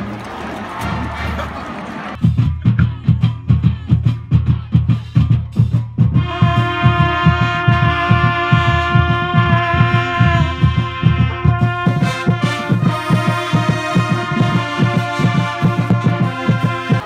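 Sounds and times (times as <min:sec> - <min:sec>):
marching band drums: 0:00.0 - 0:17.0
trumpets and brass long notes: 0:06.1 - 0:17.0.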